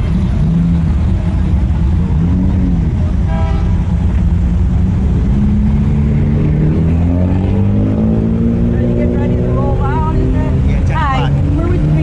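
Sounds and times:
car engines rumbling: 0:00.0 - 0:12.0
engine revving: 0:01.9 - 0:12.0
car horn toot: 0:03.2 - 0:03.8.

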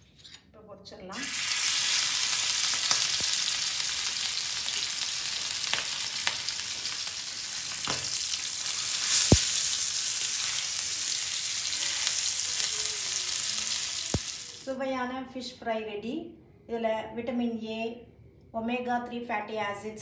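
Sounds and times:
fish sizzling in oil: 0:01.1 - 0:14.7.

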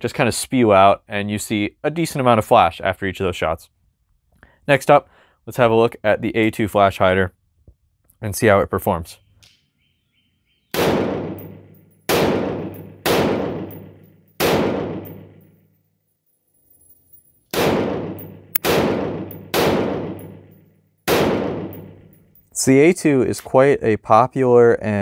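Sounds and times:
rifle shots with ringing echo: 0:10.7 - 0:15.5, 0:17.5 - 0:22.4.

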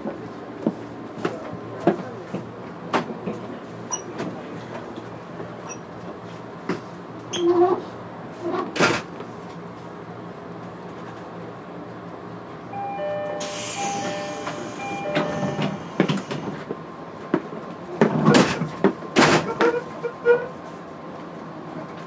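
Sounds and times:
train equipment humming: 0:09.2 - 0:22.0.

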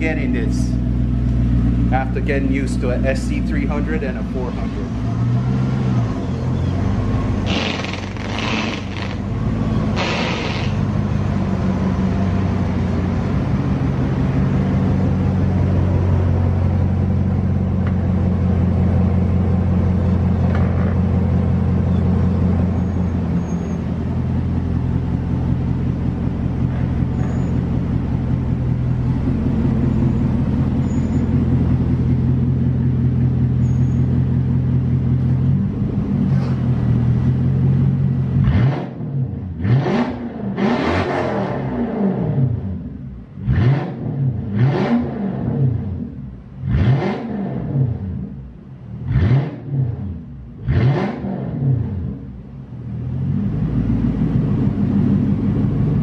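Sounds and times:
car engine idling: 0:00.0 - 0:38.4, 0:51.8 - 0:56.0
short bursts of noise: 0:07.4 - 0:09.3, 0:09.9 - 0:10.9.

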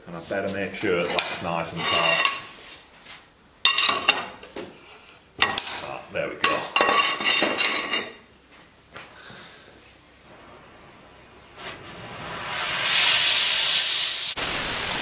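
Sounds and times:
gas torch hissing: 0:10.2 - 0:15.0.

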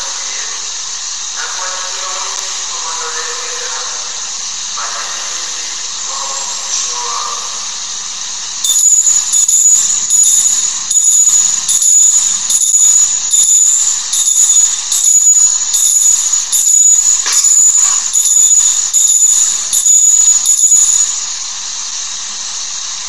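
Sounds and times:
bells jingling: 0:08.6 - 0:21.4.

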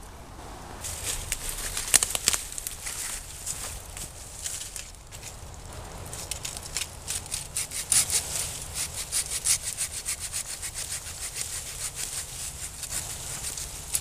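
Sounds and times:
hand saw rasping through vine: 0:06.2 - 0:14.0.

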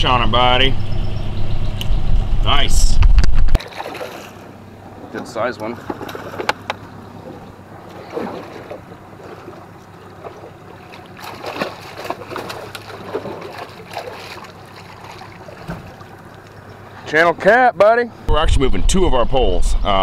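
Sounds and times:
fish thrashing and splashing: 0:03.6 - 0:04.6, 0:05.8 - 0:17.0.

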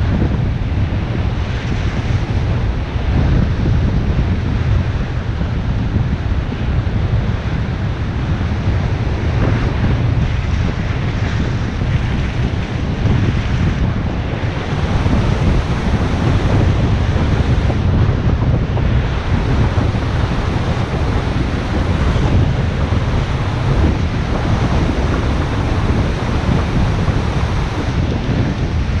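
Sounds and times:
wind buffeting microphone: 0:00.0 - 0:29.0
surf breaking on beach: 0:10.4 - 0:29.0.

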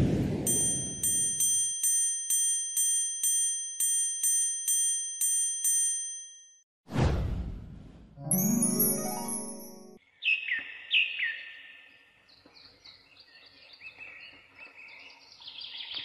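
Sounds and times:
bell-like ding: 0:00.5 - 0:06.6, 0:08.2 - 0:10.0
whoosh: 0:06.9 - 0:08.3.

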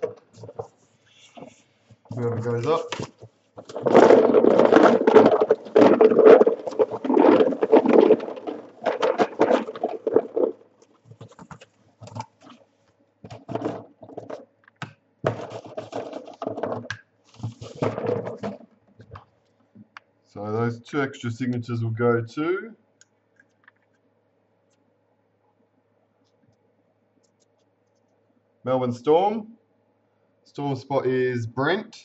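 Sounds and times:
hands rustling and scraping: 0:00.0 - 0:14.5, 0:15.2 - 0:19.3.

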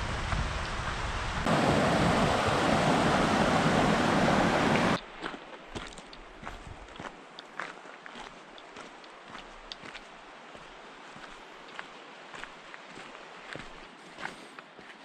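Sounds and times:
stream rushing over rocks: 0:00.0 - 0:14.2
footsteps crunching on gravel: 0:05.0 - 0:15.0.

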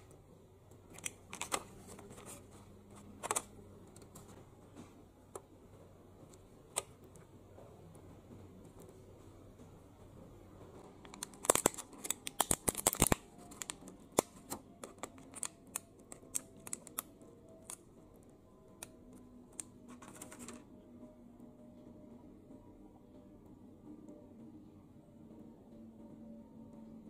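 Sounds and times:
plastic container crackling: 0:11.0 - 0:17.0.

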